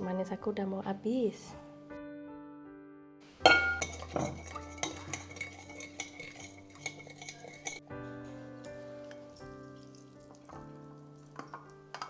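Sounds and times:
utensil clinking against bowl: 0:03.4 - 0:07.8, 0:11.2 - 0:12.0.

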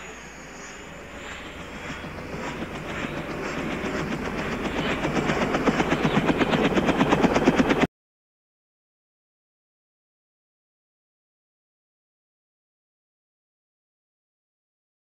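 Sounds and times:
helicopter rotor blades beating: 0:00.0 - 0:07.9.

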